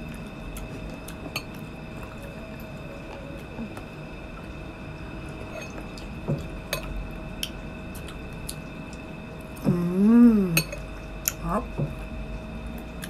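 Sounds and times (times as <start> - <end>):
closed-mouth hum: 0.0 - 13.0
person chewing a grape: 7.4 - 9.6.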